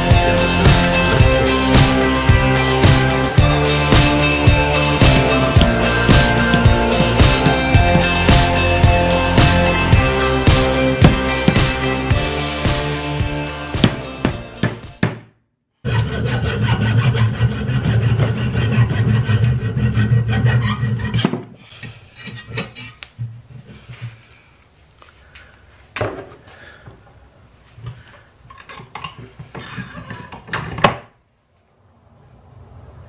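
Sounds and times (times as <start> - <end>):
hand saw cutting wood: 0.6 - 13.0, 13.8 - 14.8, 15.8 - 21.4.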